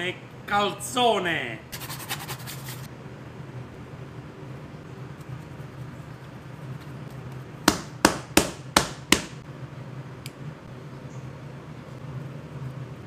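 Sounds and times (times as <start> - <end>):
steady low hum: 0.0 - 13.0
sharp knocks: 7.6 - 9.4.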